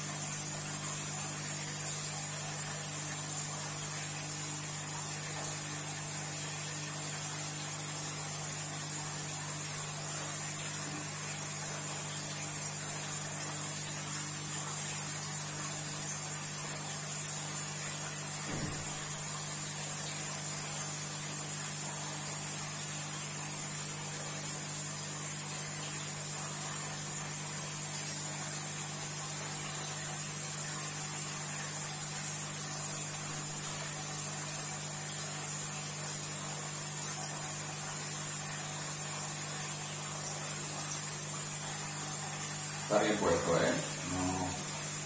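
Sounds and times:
low electrical hum: 0.0s - 45.0s
even hiss: 42.5s - 45.0s.

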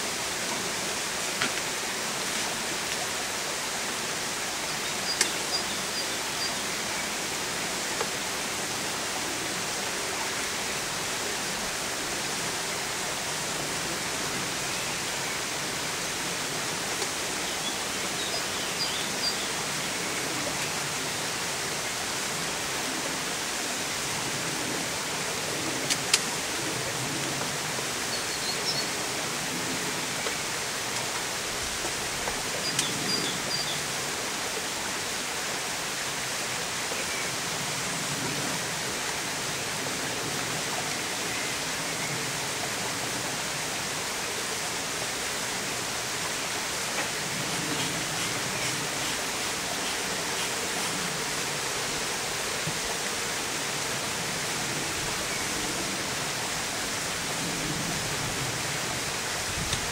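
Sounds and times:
steady outdoor hiss: 0.0s - 59.9s.

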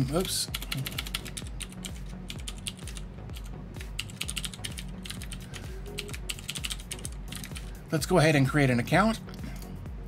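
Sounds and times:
low background music: 0.0s - 10.0s
computer keyboard typing: 0.2s - 5.4s, 6.0s - 7.7s.

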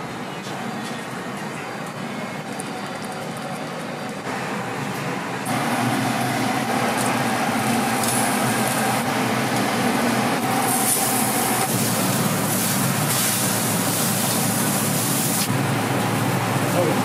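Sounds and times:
meat sizzling on a grill: 5.6s - 16.7s.

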